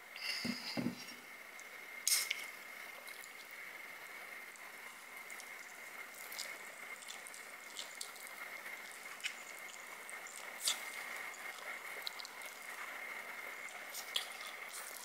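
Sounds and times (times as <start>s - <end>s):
chewing noodles: 4.6s - 15.0s.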